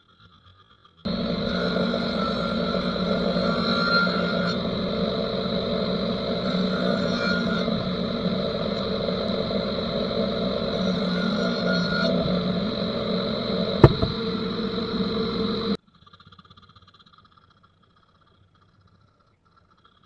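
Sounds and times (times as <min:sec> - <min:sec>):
table saw whining: 0:01.1 - 0:15.8.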